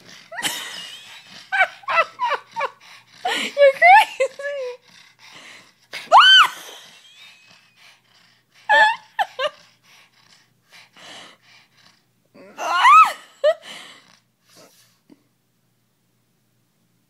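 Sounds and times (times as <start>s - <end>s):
dog breathing: 0.0s - 6.1s, 6.8s - 12.2s.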